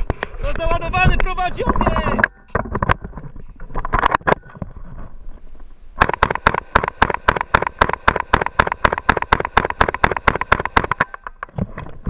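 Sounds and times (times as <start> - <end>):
semi-automatic rifle shots: 6.0 - 11.3.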